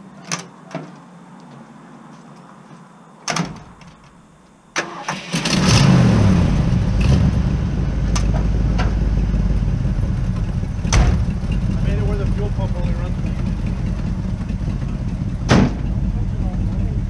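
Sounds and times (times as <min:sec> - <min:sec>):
engine running steadily: 0:05.7 - 0:17.0.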